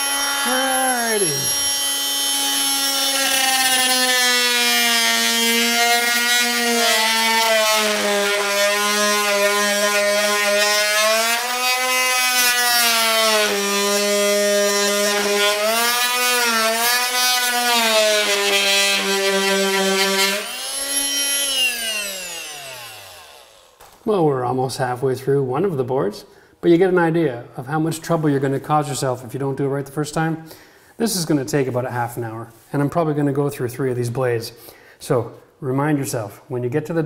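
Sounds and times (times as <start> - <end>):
multi-tool cutting floorboards: 0.0 - 24.2.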